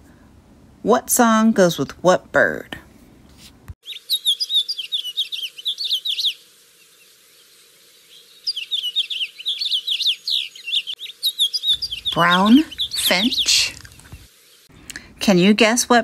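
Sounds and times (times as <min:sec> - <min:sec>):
finch chirping and trilling: 0:03.8 - 0:06.4, 0:08.4 - 0:14.3.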